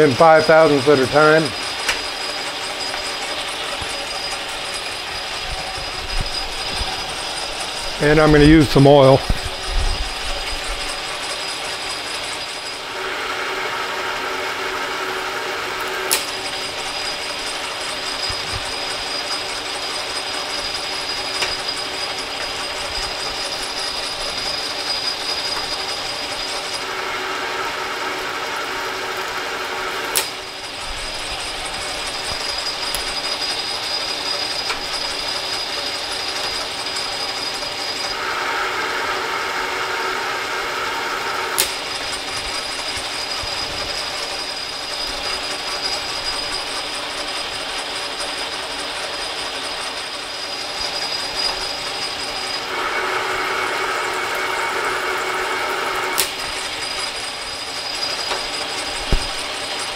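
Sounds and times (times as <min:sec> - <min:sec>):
metal lathe whirring: 0:00.0 - 0:59.9
sharp click: 0:16.1 - 0:16.3, 0:41.6 - 0:41.8.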